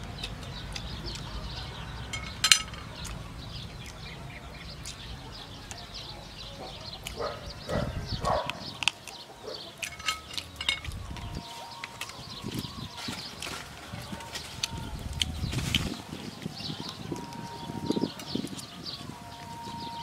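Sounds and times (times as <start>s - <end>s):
chewing and mouth noises: 0.0s - 19.9s
birds chirping: 0.0s - 20.0s
chopsticks clicking on plate: 2.1s - 3.2s, 9.8s - 12.2s.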